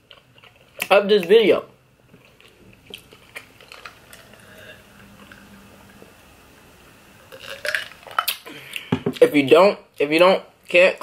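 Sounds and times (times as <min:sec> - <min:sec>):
person gulping juice: 0:07.3 - 0:09.0.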